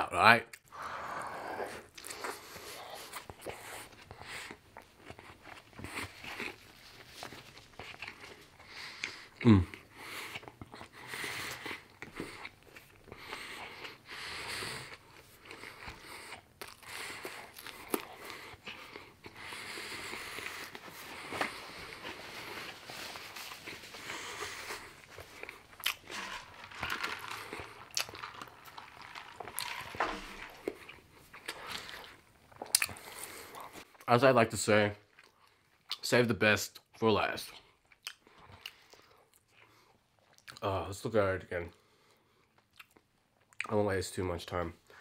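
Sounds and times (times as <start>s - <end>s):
close-up chewing: 1.7s - 34.1s.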